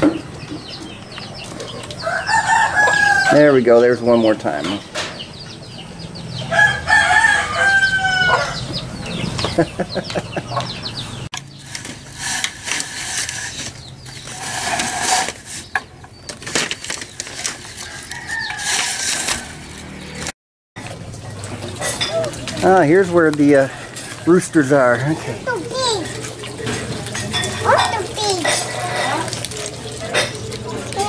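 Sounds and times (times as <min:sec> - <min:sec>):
chicken calls: 0:00.0 - 0:04.3, 0:05.3 - 0:11.7
rooster crowing: 0:02.0 - 0:03.4, 0:06.4 - 0:08.8, 0:17.8 - 0:19.8
rustling and scratching: 0:11.5 - 0:20.3, 0:21.3 - 0:31.0.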